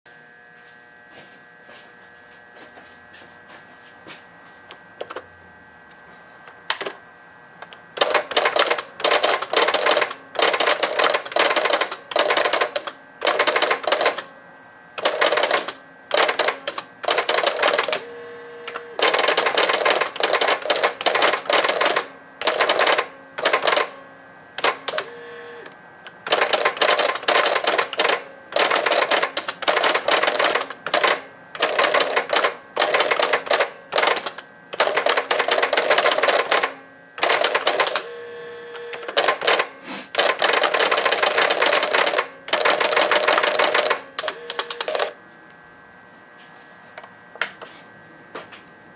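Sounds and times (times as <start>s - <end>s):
pen plotter buzzing and rattling: 7.6s - 45.2s.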